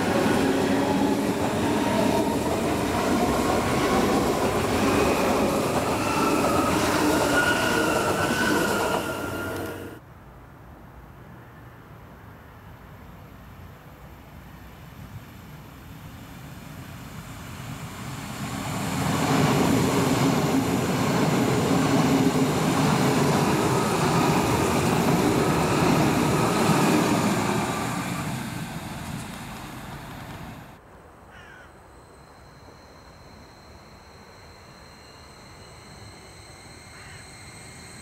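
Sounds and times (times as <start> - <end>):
train wheels rumbling on rail: 0.0 - 10.0, 16.3 - 30.8.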